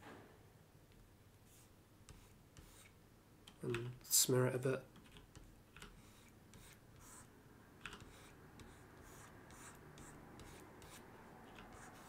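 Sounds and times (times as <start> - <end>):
light scratches and clicks: 4.8 - 12.0.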